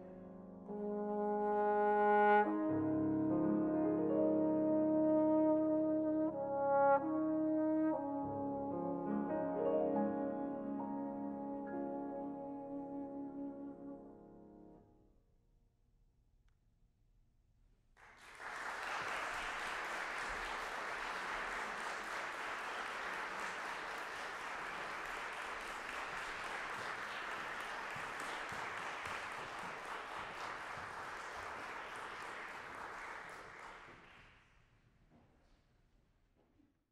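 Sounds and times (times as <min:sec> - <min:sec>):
audience applauding: 0:18.0 - 0:34.4.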